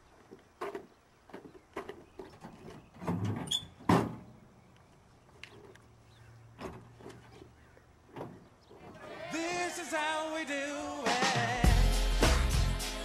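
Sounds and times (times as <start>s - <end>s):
knocks and scuffs: 0.2s - 4.2s
tailgate metal clunk: 3.0s - 4.3s.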